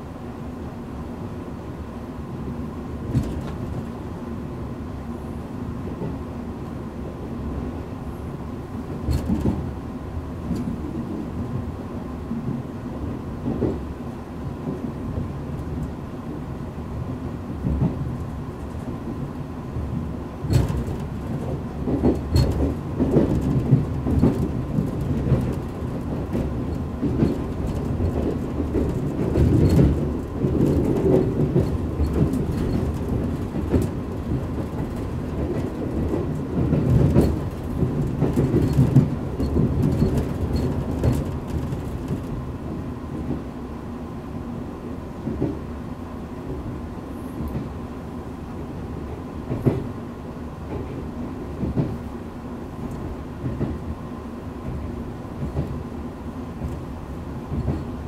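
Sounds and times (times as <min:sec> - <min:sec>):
train wheels rumbling on rail: 0:00.0 - 0:58.0.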